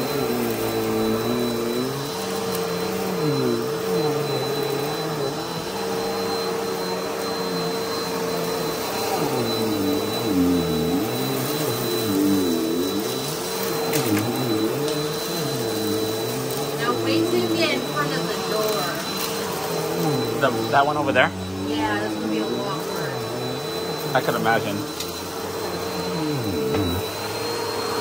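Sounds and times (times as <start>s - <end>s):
vacuum cleaner motor drone: 0.0s - 28.0s.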